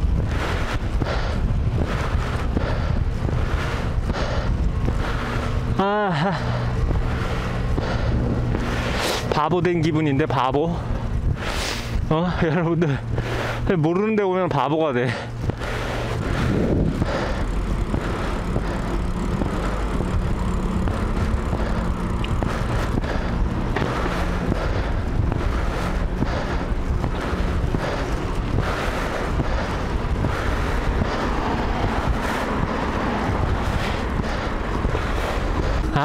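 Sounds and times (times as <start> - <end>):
low rumble: 0.0 - 36.0
wind rush on microphone: 0.0 - 36.0.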